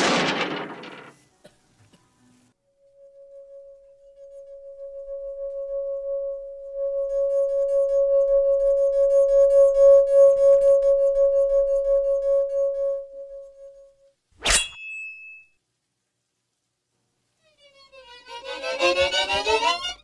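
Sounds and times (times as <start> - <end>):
sustained ringing tone: 2.8 - 14.0.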